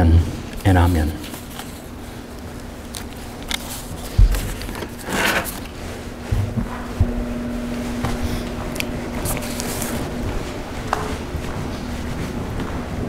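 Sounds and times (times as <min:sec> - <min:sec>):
low steady hum: 0:00.0 - 0:13.0
people rustling: 0:01.2 - 0:13.0
soft thumps and knocks: 0:06.3 - 0:07.3.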